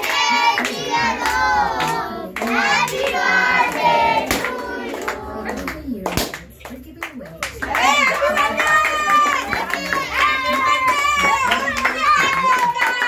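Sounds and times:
people singing in high voices: 0.0s - 5.7s
hand clapping: 3.7s - 13.0s.

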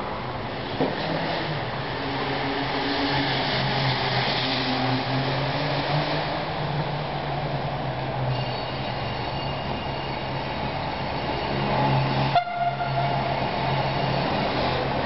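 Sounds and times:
train humming over a viaduct: 0.0s - 15.0s
faint high squeals: 8.3s - 10.4s.

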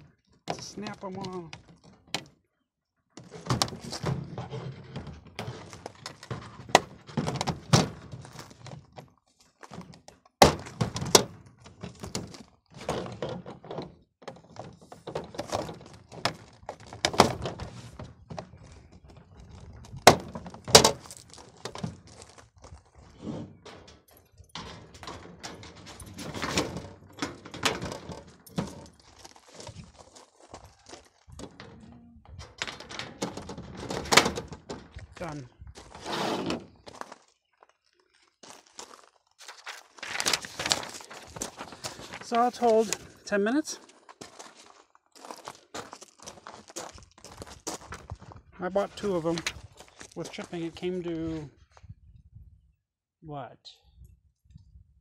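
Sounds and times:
plastic lids knocking and clattering: 9.7s - 21.0s, 24.6s - 29.0s.

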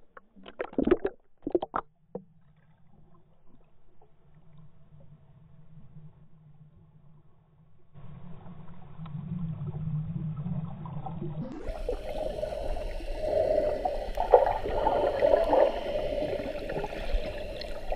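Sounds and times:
muffled underwater swimming noise: 9.3s - 17.9s.

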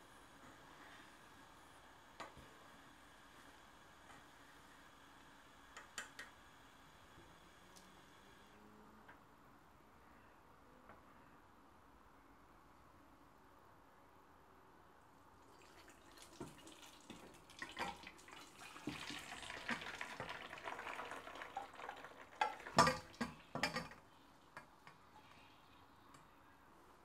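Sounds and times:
water pouring into a colander: 15.4s - 23.9s.

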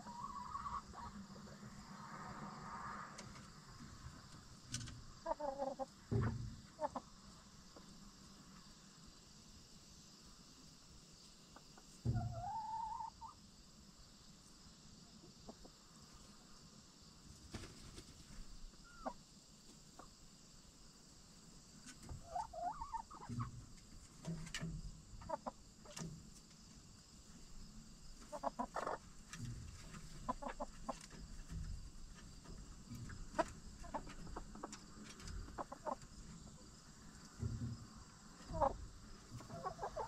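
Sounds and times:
hens clucking: 0.0s - 1.6s, 5.1s - 7.2s, 11.5s - 13.4s, 15.2s - 15.9s, 18.7s - 20.2s, 21.9s - 26.1s, 28.2s - 40.0s.

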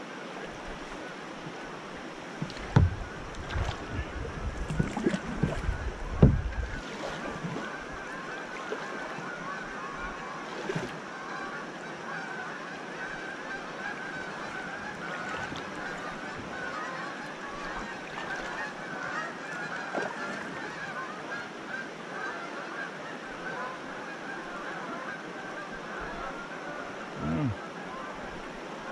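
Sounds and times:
rushing river water: 0.0s - 28.9s
geese honking: 7.6s - 10.4s, 11.2s - 28.1s.

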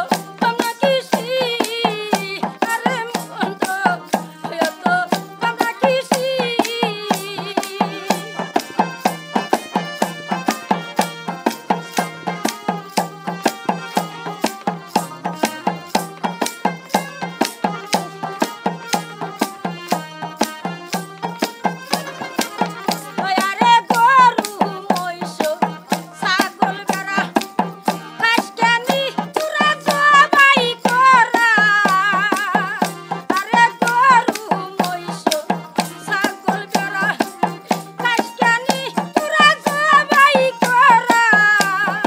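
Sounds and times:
woman singing: 0.0s - 8.5s, 22.4s - 42.0s
hand drum and tambourine beat: 0.0s - 42.0s
harmonium chords: 0.0s - 42.0s.

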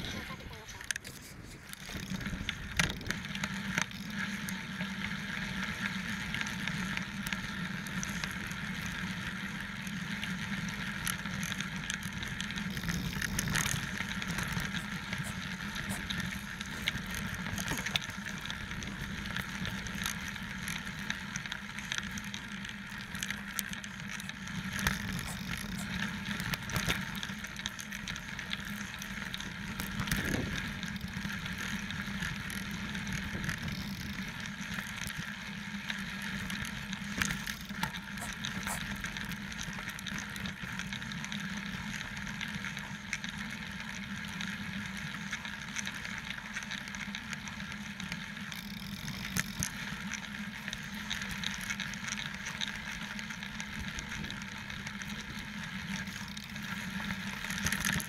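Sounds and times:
bike tyres and drivetrain: 0.0s - 58.0s.

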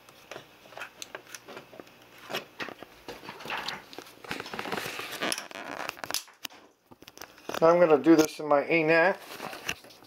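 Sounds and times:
small clicks taps and scrapes: 5.3s - 8.3s, 9.4s - 10.0s.

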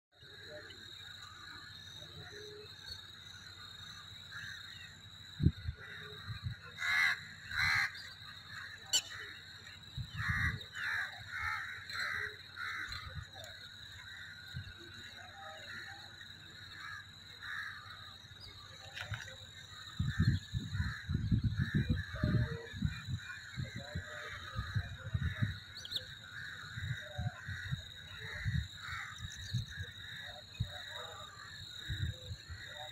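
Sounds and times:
birds calling: 0.2s - 32.9s
crows cawing: 5.8s - 18.2s, 19.7s - 22.2s, 24.0s - 32.9s.

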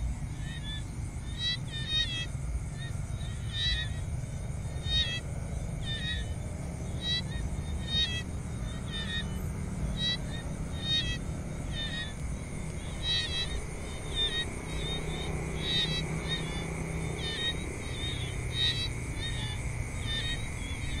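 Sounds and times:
high insect drone: 0.0s - 21.0s
high chirping calls: 12.9s - 21.0s.

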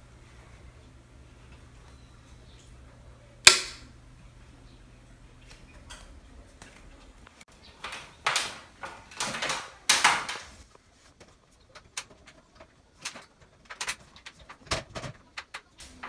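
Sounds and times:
plastic scraping on plastic: 7.7s - 16.0s.

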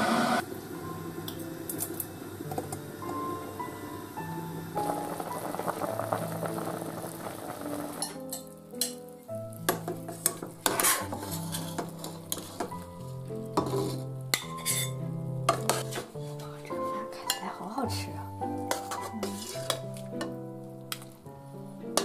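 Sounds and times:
simmering hiss: 0.0s - 10.1s
metal ladle clinking on pot: 8.0s - 9.0s, 13.6s - 16.0s, 18.7s - 21.0s.

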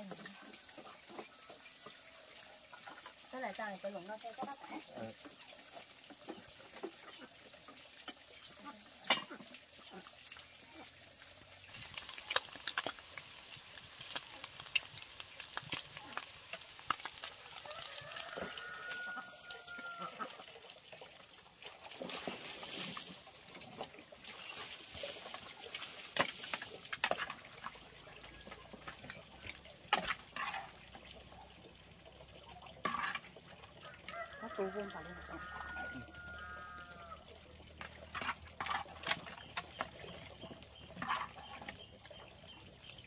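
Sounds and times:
food sizzling in a frying pan: 11.2s - 20.2s
utensils scraping a metal pan: 26.1s - 27.6s, 29.9s - 30.9s, 32.8s - 33.3s, 38.1s - 40.0s, 40.9s - 41.8s.

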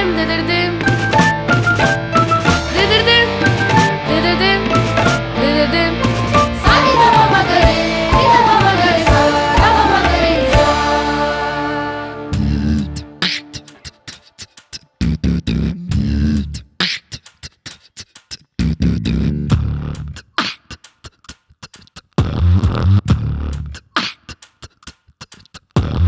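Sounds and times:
beatboxing percussion sounds: 0.8s - 4.1s, 12.4s - 26.0s
beatboxed deep bass notes: 12.3s - 26.0s.

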